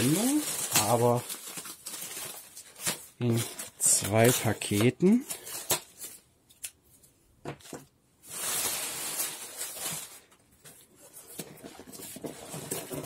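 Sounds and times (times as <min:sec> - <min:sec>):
packaging ripping: 0:00.0 - 0:06.2.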